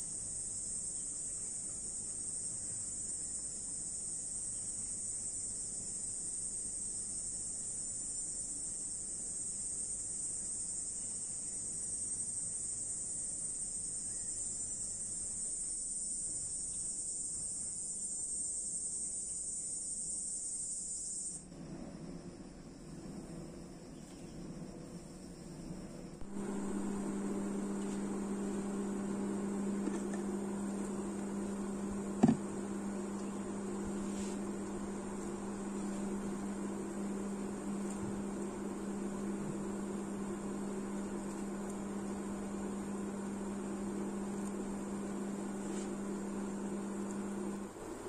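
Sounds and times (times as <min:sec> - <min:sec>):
cooktop electrical hum: 0:21.2 - 0:48.0.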